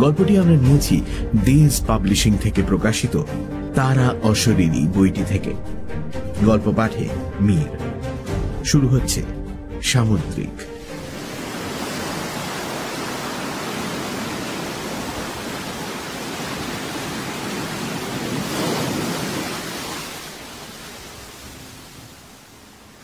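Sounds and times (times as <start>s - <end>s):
waves breaking: 10.7s - 23.0s.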